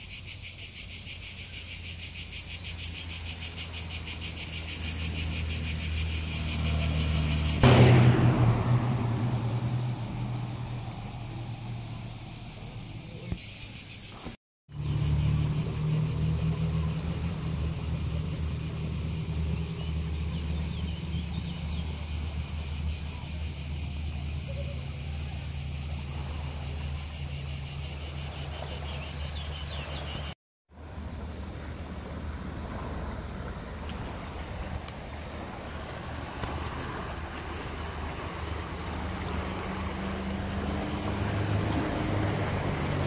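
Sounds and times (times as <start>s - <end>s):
cicadas shrilling: 0.0s - 43.0s
low rumble: 7.6s - 13.0s.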